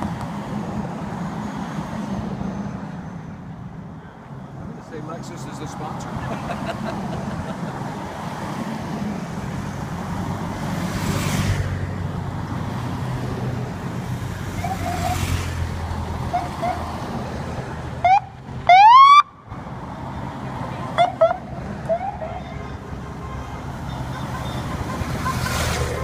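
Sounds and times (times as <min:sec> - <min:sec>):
vehicles passing on highway: 0:00.0 - 0:26.0
police siren whoop: 0:18.0 - 0:19.3.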